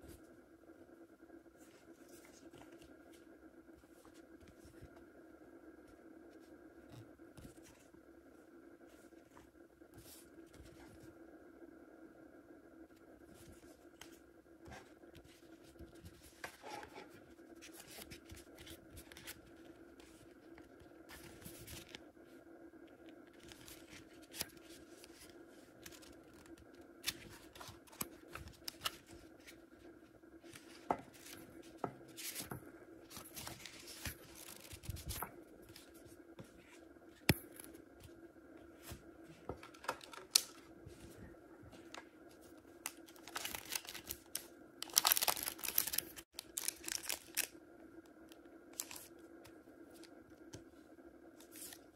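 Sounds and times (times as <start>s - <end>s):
faint hum: 0.0s - 51.9s
paper sheets rustling: 33.1s - 36.8s, 41.8s - 47.5s.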